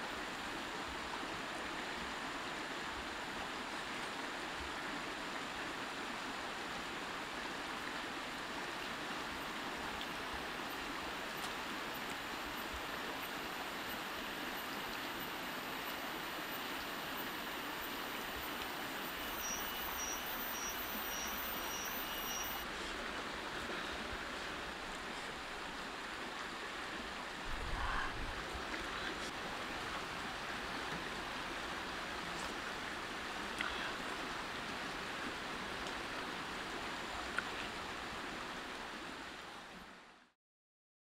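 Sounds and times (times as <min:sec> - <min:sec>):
rushing outdoor noise: 0:00.0 - 0:40.2
faint high chirp: 0:19.1 - 0:22.6.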